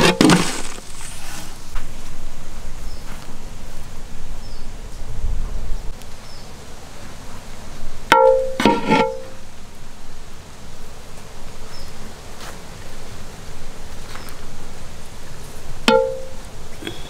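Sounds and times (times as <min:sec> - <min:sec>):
strong pitched note: 0:08.1 - 0:09.4, 0:15.9 - 0:16.4.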